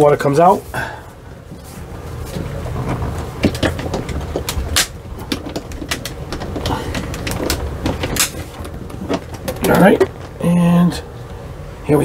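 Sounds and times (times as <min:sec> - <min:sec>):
low rumble of handling: 0:00.0 - 0:12.0
sharp knocks and clicks: 0:02.2 - 0:10.4.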